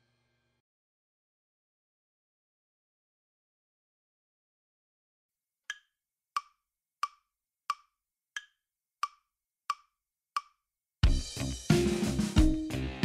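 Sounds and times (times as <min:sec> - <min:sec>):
metronome clicks: 0:05.7 - 0:10.5.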